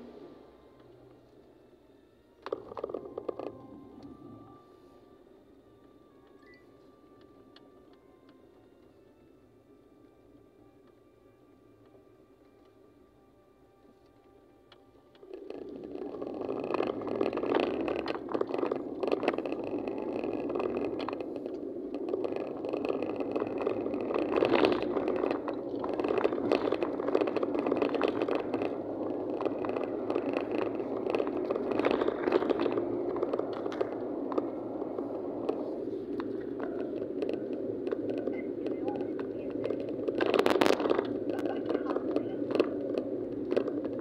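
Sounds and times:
small rattles and clicks: 2.4s - 4.2s, 13.8s - 44.0s
car cabin road rumble: 2.4s - 7.9s, 15.1s - 44.0s.

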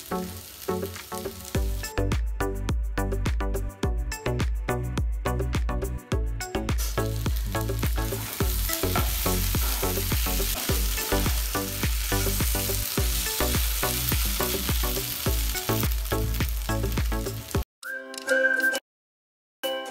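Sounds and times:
chicken sizzling in frying pan: 0.0s - 2.0s, 6.8s - 17.6s
background music with beat: 0.0s - 18.8s
spatula stirring in pan: 7.8s - 14.2s.

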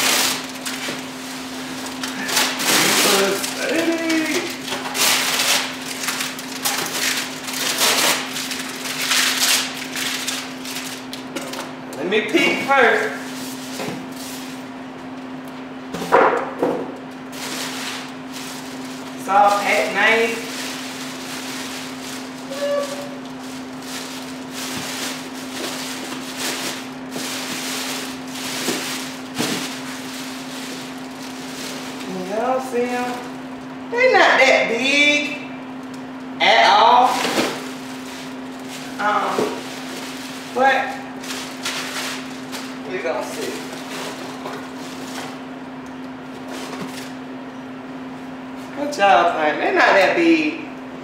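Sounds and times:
plastic bag crinkling: 0.0s - 11.7s, 17.0s - 33.7s, 37.1s - 42.9s
steady low hum: 0.0s - 51.0s.

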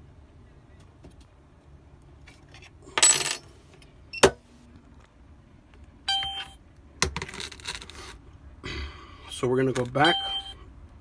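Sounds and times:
short tone: 10.0s - 10.6s.

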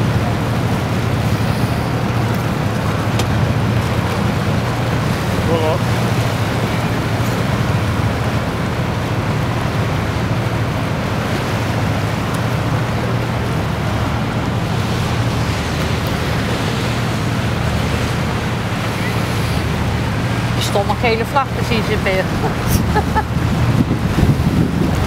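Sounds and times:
motor boat engine droning: 0.0s - 25.0s
water rushing along hull: 0.0s - 25.0s
wind noise: 22.2s - 25.0s.

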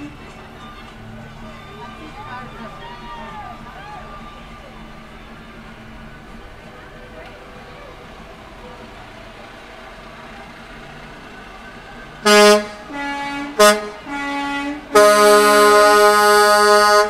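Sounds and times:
multi-note air horn blasts: 12.2s - 17.0s.

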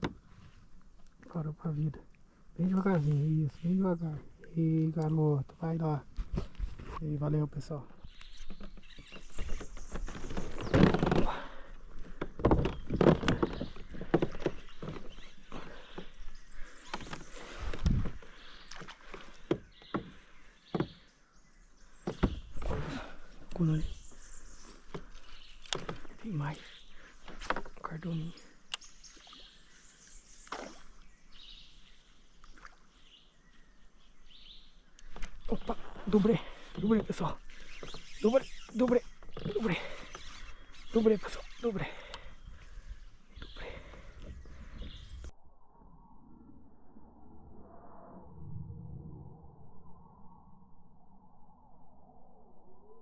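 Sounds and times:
water splashing against kayak hull: 7.9s - 21.1s
faint bird chirps: 12.6s - 53.0s.

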